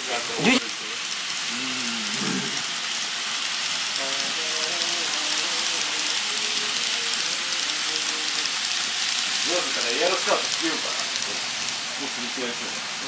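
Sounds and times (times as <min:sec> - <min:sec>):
model train rattling on track: 0:00.0 - 0:01.5, 0:02.2 - 0:13.0
faint music: 0:04.0 - 0:13.0.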